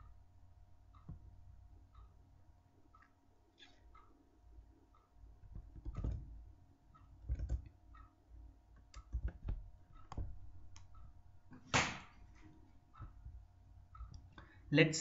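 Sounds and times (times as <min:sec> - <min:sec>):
faint steady hum: 0:00.0 - 0:15.0
keyboard and mouse clicks: 0:05.4 - 0:06.4, 0:07.0 - 0:08.1, 0:08.8 - 0:11.1.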